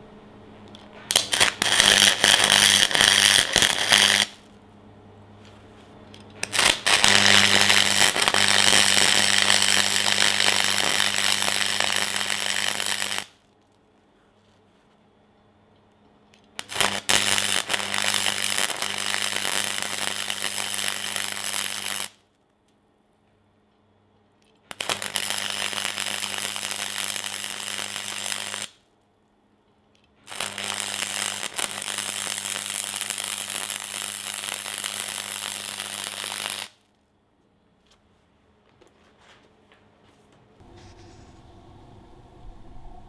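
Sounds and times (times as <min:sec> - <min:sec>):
welding arc crackling: 0:01.0 - 0:04.5, 0:06.4 - 0:13.4, 0:16.6 - 0:22.2, 0:24.7 - 0:28.8, 0:30.2 - 0:36.8
low hum: 0:40.6 - 0:43.0.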